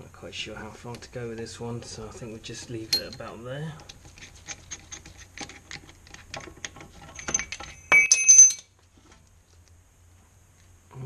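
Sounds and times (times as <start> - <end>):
ringing metal clink: 2.9 - 3.3, 7.2 - 8.7.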